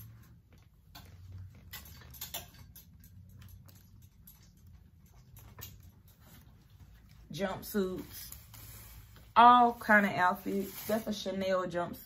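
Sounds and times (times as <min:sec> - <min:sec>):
faint irregular clicks and ticks: 0:00.3 - 0:07.3.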